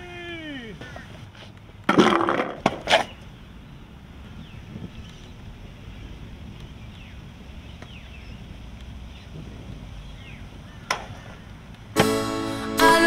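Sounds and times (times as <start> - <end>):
faint outdoor background: 0.0 - 13.0
strummed guitar music: 12.0 - 13.0.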